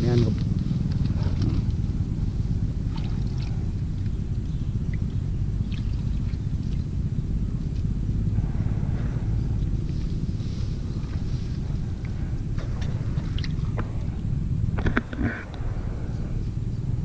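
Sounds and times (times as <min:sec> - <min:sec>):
wind rumble buffeting microphone: 0:00.0 - 0:17.0
hands rustling in grass: 0:09.8 - 0:12.2.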